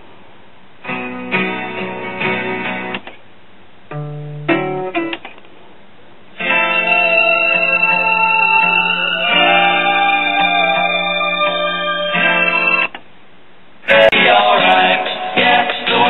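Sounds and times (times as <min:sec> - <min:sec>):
recorded guitar music: 0:00.8 - 0:03.2, 0:03.9 - 0:05.5, 0:06.4 - 0:13.0, 0:13.9 - 0:16.0.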